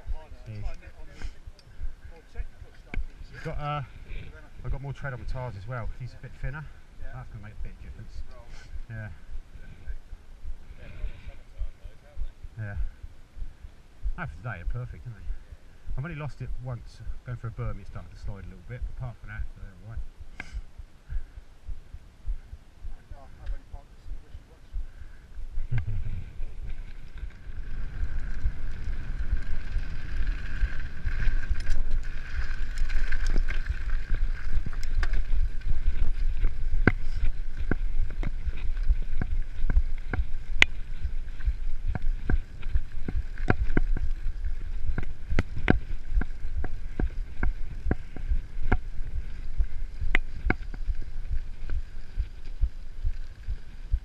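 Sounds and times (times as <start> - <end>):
bike vibration rumble: 17.1 - 54.0
bike rattling over bumps: 25.8 - 54.0.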